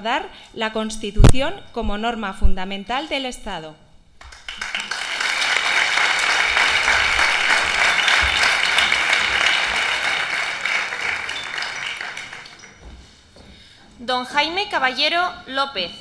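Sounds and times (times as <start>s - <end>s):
crowd applauding: 4.2s - 12.9s.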